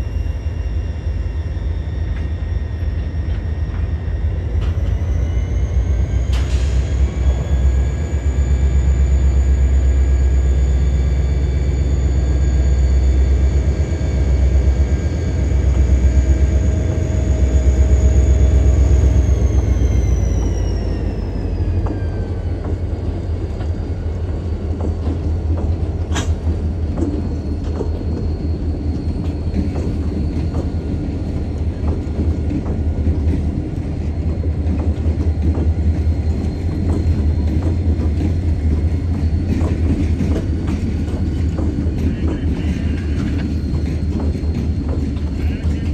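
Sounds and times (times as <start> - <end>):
diesel locomotive rumble and whine: 0.0 - 45.9
freight car wheels on rail: 0.0 - 45.9.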